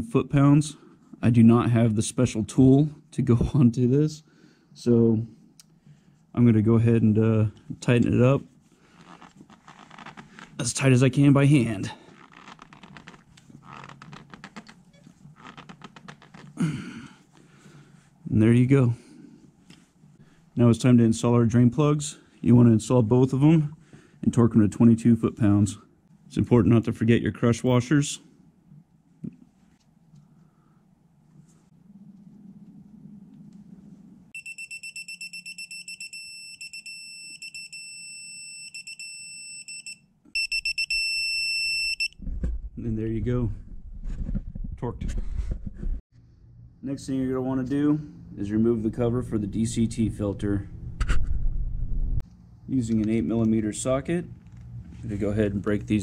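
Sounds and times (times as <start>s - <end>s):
torque wrench beeping: 34.4s - 42.2s.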